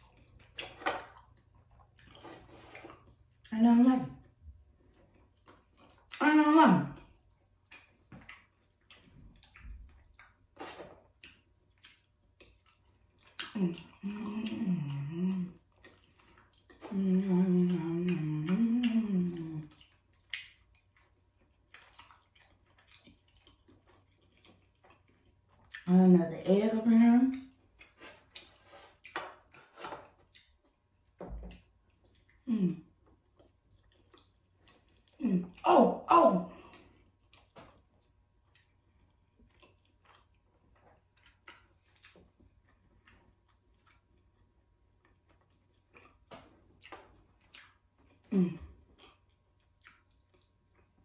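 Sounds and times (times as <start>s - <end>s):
chewing clicks and smacks: 7.0s - 14.2s, 19.6s - 25.9s, 27.3s - 29.6s, 30.2s - 30.8s, 33.0s - 35.2s, 36.7s - 48.3s, 48.9s - 51.0s
woman humming mmm: 13.6s - 15.6s, 16.8s - 19.7s, 32.5s - 32.9s, 48.3s - 48.8s.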